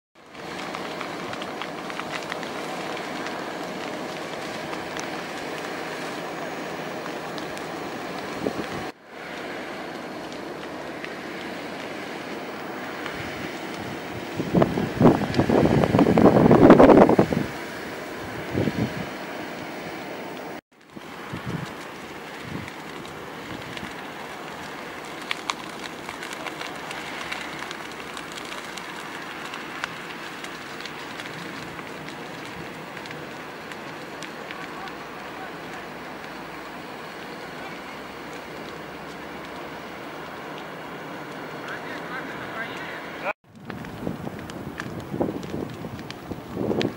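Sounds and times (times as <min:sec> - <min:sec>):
fire crackling: 0:00.2 - 0:46.9
wildfire roaring: 0:00.2 - 0:46.9.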